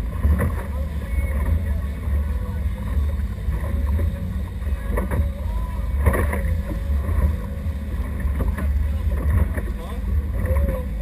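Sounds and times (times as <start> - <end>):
outboard motors rumbling: 0.0 - 11.0
water rushing past hull: 0.0 - 11.0.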